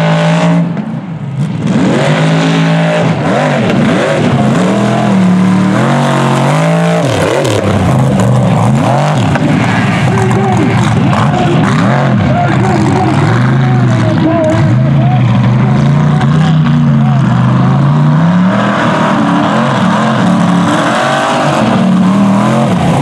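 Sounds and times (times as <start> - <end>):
truck engine revving: 0.0 - 23.0.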